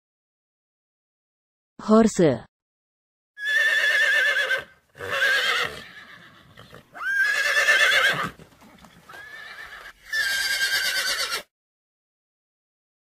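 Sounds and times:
horse whinnying: 0:03.4 - 0:11.5.

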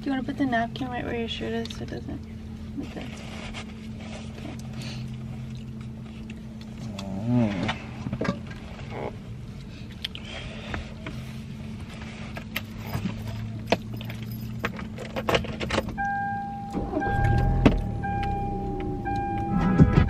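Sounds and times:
car cabin hum: 0:10.6 - 0:20.0
high intermittent tone: 0:16.0 - 0:20.0.

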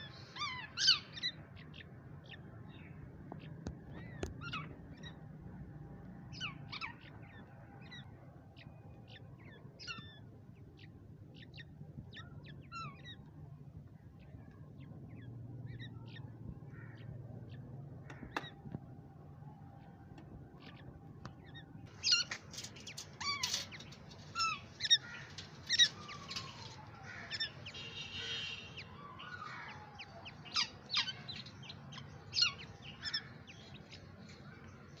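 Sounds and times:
low steady hum: 0:00.0 - 0:35.0
chicks chirping: 0:21.9 - 0:34.0.

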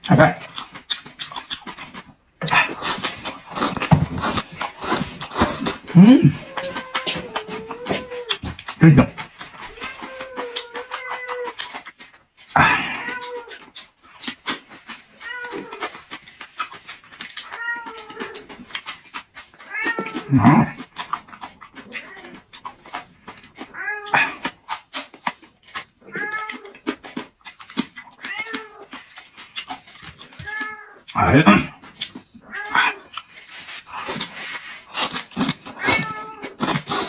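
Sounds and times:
cat meowing: 0:06.3 - 0:08.4, 0:09.6 - 0:11.6, 0:15.2 - 0:15.9, 0:17.4 - 0:18.5, 0:19.6 - 0:20.4, 0:26.0 - 0:26.8, 0:28.2 - 0:28.9, 0:30.4 - 0:31.1, 0:35.7 - 0:36.6.

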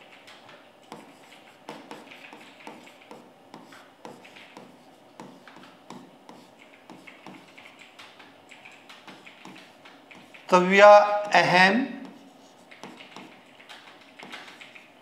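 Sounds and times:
stylus tapping on touchscreen: 0:01.7 - 0:08.2.

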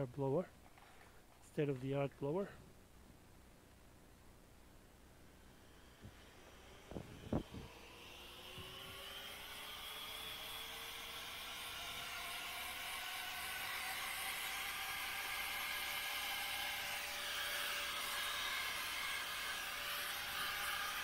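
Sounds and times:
blower motor whine: 0:05.1 - 0:21.0.

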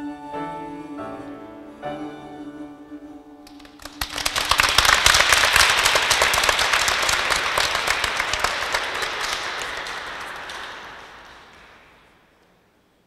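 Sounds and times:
audience applause: 0:03.5 - 0:12.4.

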